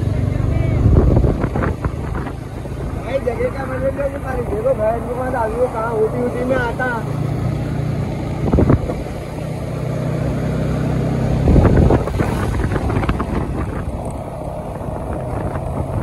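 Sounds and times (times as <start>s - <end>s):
wind on microphone: 0.0s - 3.0s, 8.0s - 16.0s
motorcycle engine running: 0.0s - 16.0s.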